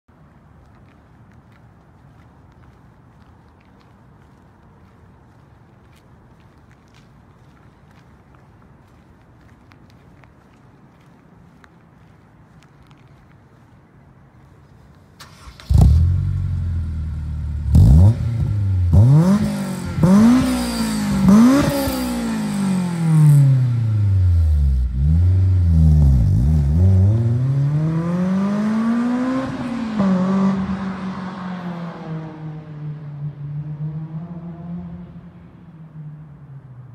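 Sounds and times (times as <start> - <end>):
car engine starting and revving: 15.2 - 35.2.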